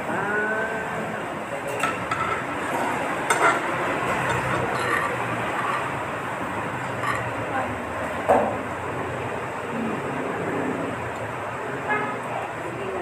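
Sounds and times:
cutlery clinking on ceramic dishes: 1.7s - 2.5s, 3.3s - 5.9s, 7.0s - 7.3s.

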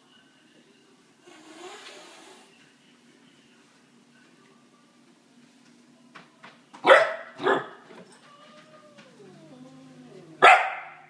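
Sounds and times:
puppy barking: 6.8s - 7.8s, 9.3s - 11.0s
puppy whining: 8.1s - 10.8s.

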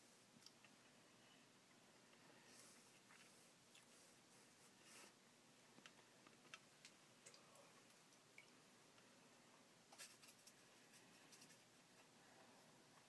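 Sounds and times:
brush tapping and scratching paper: 9.9s - 11.7s.

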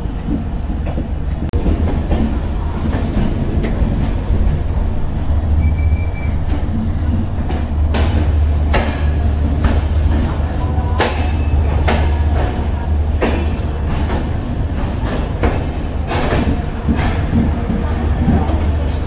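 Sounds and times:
low train rumble: 0.0s - 19.0s
train wheels clacking over rail joints: 6.4s - 19.0s.

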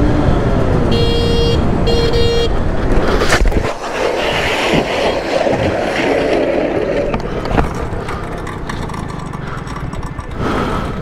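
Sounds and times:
motorcycle scraping on asphalt: 2.5s - 11.0s.

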